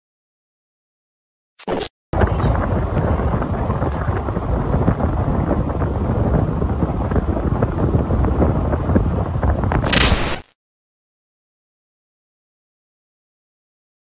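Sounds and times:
wind buffeting microphone: 2.2 - 9.9.

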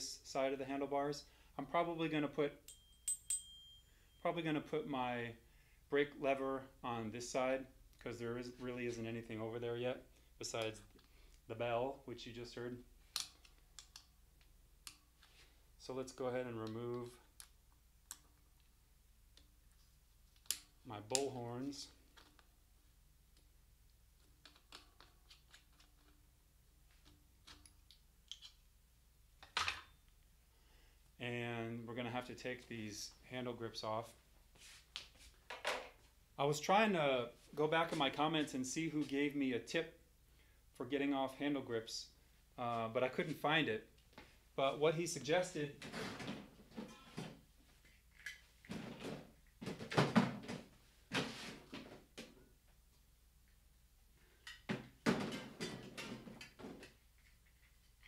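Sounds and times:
objects knocking and rattling: 54.5 - 58.0.

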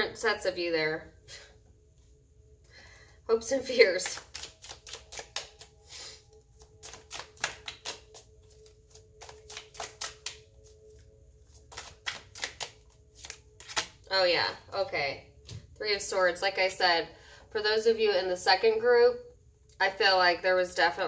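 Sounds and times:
cards being shuffled: 4.0 - 5.8, 6.5 - 14.0.

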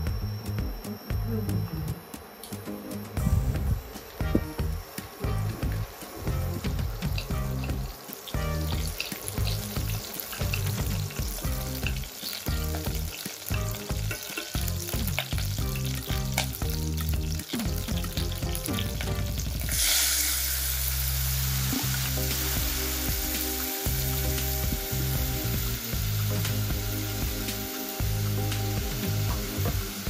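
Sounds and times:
loud steady hiss of frying: 0.0 - 30.0
scallions sizzling in oil: 3.5 - 30.0
chopsticks stirring in pan: 5.7 - 20.4.

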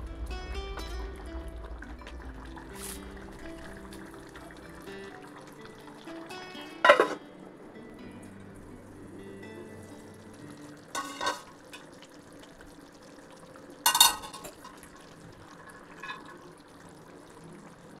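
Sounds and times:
curry simmering: 0.0 - 18.0
pot lid clanking against pot: 6.8 - 7.2, 10.9 - 11.8, 13.9 - 14.8.

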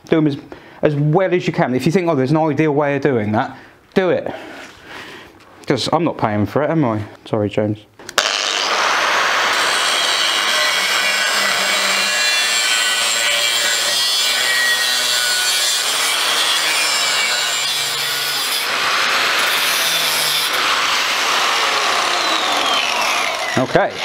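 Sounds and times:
angle grinder cutting metal: 8.2 - 24.0.

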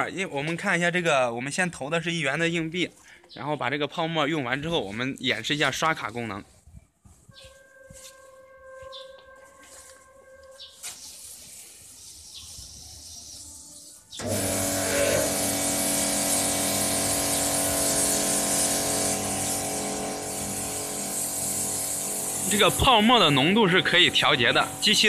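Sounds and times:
high-pressure foam spraying: 10.6 - 25.0
high-pressure pump humming: 14.2 - 25.0.

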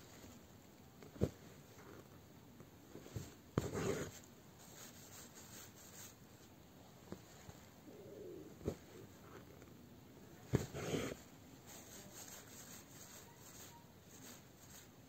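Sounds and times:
thread rubbing through cloth: 10.5 - 15.0.

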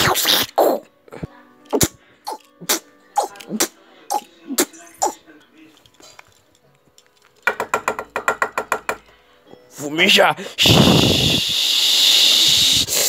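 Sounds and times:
person making mouth noises: 0.0 - 5.2, 10.6 - 13.0.

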